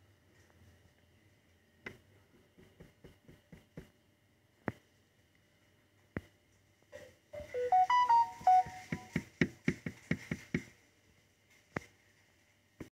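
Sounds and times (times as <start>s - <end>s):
electronic beeping tune: 7.4s - 9.2s.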